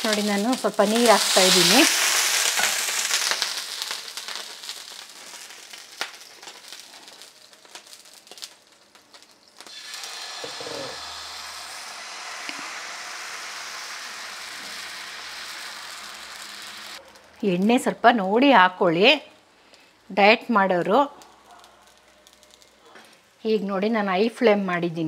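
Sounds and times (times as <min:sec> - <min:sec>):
water sizzling on hot griddle: 0:00.0 - 0:17.6, 0:20.7 - 0:23.4
batter sizzling softly: 0:00.0 - 0:17.8.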